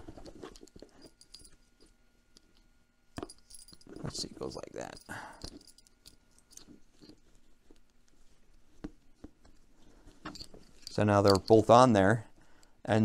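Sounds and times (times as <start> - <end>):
leather straps rustling: 3.2 - 11.7
metal buckles clicking: 10.2 - 11.7.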